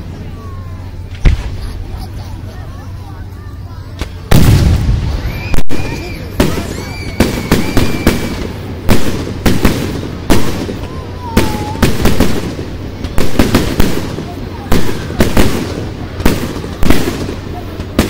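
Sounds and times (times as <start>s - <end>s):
fireworks bursting: 0.0s - 18.0s.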